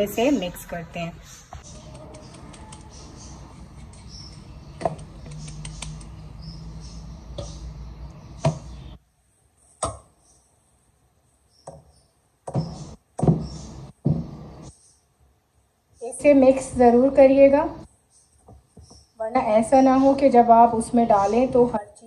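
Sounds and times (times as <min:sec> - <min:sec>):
short thumps: 0:12.5 - 0:14.4.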